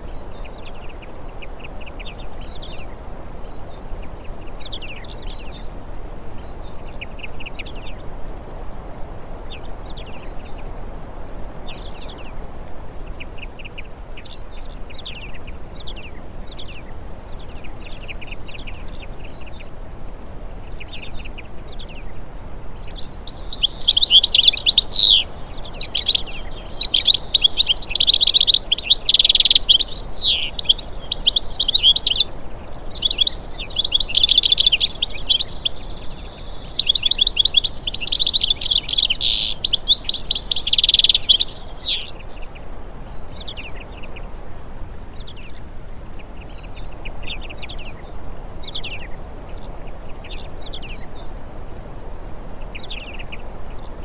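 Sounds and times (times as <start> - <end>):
small birds chirping and twittering: 0.0 - 54.0.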